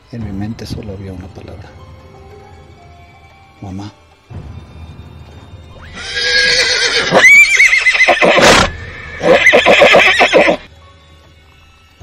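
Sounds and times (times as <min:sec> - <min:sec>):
horse whinnying: 0:05.8 - 0:10.7.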